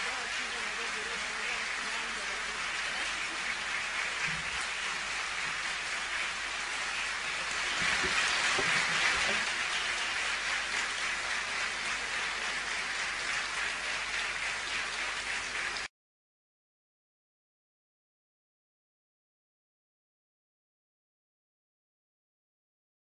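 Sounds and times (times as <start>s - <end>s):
audience applauding: 0.0s - 15.9s.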